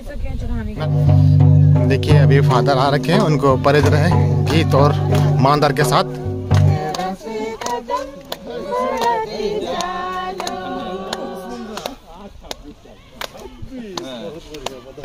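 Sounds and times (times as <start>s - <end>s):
hand drum strokes: 0.8s - 11.7s
women singing together: 3.4s - 12.1s.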